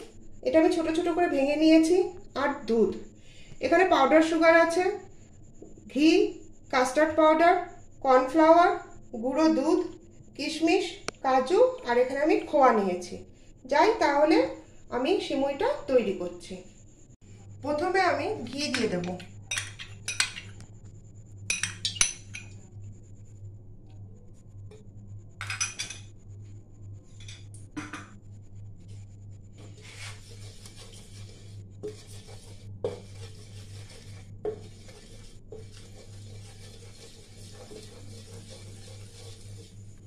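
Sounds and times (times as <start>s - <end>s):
spoon clinking against pan: 19.5s - 20.5s, 21.5s - 22.6s
spatula scraping pan: 29.5s - 40.0s.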